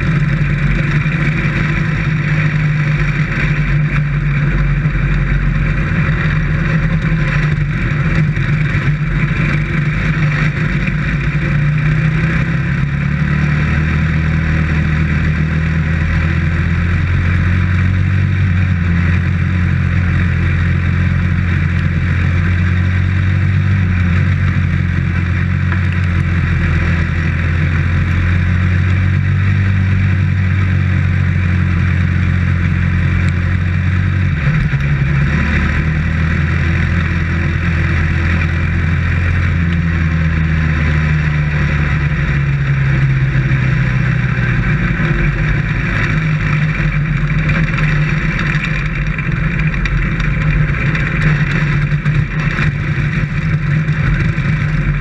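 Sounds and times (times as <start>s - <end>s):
race car engine running hard: 0.0s - 55.0s.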